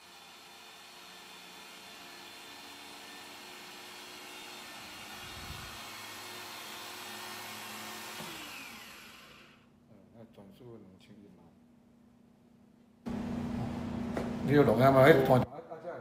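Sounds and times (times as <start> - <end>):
electric drill motor whining: 0.0 - 9.7.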